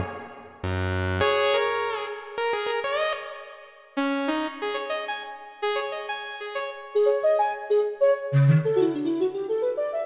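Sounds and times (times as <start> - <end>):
piano-like keyboard notes: 4.5 - 10.0.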